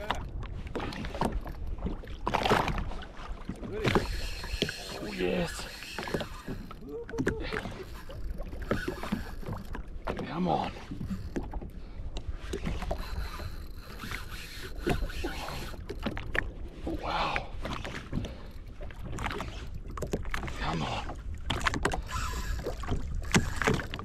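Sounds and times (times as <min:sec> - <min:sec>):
water lapping against hull: 0:00.0 - 0:24.0.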